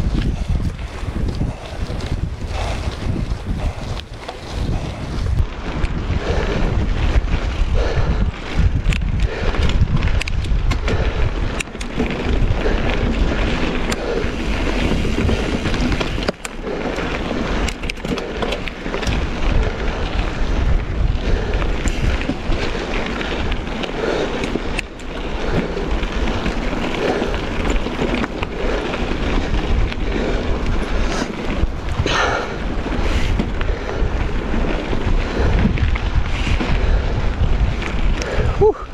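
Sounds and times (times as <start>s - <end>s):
tyres crunching over gravel: 0.0s - 5.8s, 11.4s - 36.7s
bike clicks and rattles: 0.0s - 38.9s
wind buffeting microphone: 0.0s - 38.9s.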